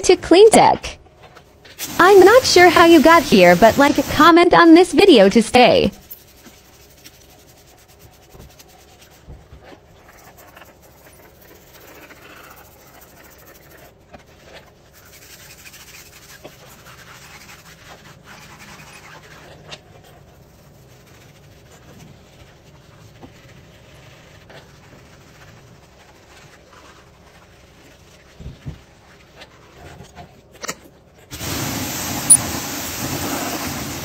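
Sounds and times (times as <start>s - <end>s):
brush scrubbing tyre: 6.0s - 30.1s
soft rubbing: 6.0s - 30.5s
trigger sprayer spritzing: 31.4s - 34.0s.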